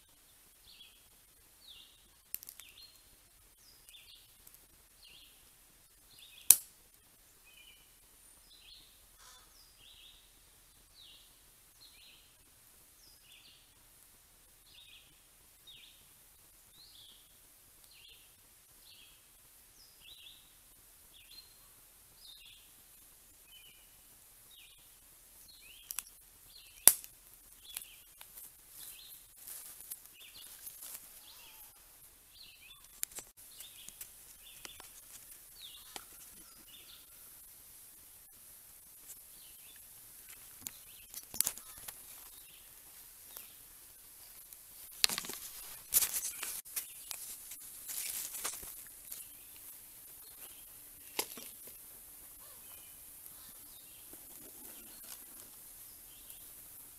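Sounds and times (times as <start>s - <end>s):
songbird chirping: 0.0s - 13.8s, 14.5s - 56.9s
fire crackling: 0.4s - 7.4s, 22.0s - 56.9s.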